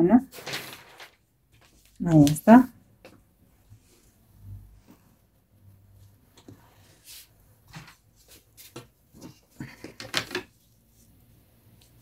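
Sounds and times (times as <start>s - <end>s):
paper rustling: 0.3s - 2.6s.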